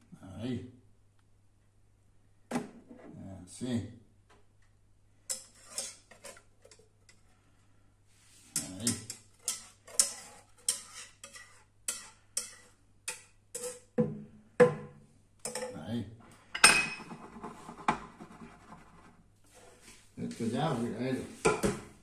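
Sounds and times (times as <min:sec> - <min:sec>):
whisk scraping a saucepan: 0:05.3 - 0:07.2, 0:08.3 - 0:14.0, 0:17.0 - 0:19.9.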